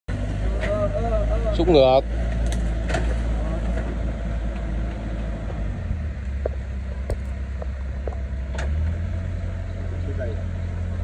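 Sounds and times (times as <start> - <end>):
diesel excavator engine running: 0.1 - 11.0
light knocks: 6.4 - 8.2.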